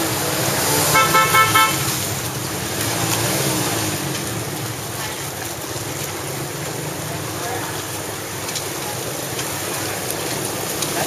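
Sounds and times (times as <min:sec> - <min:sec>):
motorbike engines: 0:00.0 - 0:11.0
water washing: 0:00.0 - 0:11.0
voices: 0:04.1 - 0:11.0.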